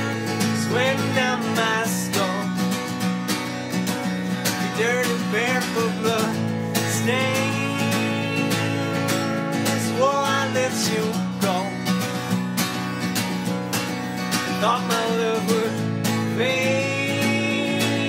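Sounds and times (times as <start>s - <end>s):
person singing: 0.0s - 2.7s, 4.5s - 11.9s, 14.4s - 18.0s
acoustic guitar strumming: 0.0s - 18.0s.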